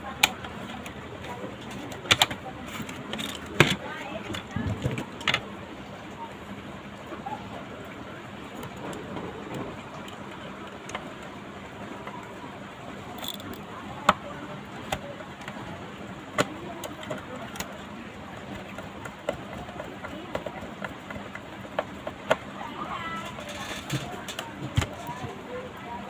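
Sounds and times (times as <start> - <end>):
sharp plastic clicks and taps: 0.0 - 5.4, 13.2 - 17.8, 18.4 - 22.5
steady background noise: 0.0 - 26.0.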